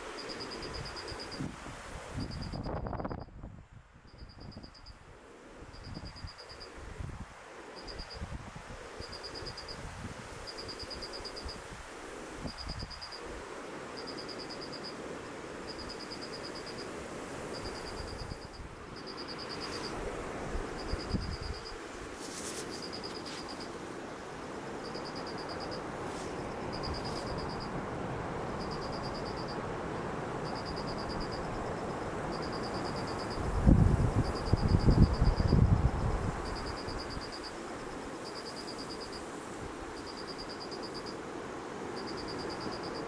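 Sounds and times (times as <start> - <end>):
high insect trill: 0.0 - 1.5, 2.2 - 3.3, 5.7 - 6.8, 7.7 - 43.0
wind blowing on microphone: 0.0 - 13.6, 16.8 - 24.0, 24.6 - 38.2.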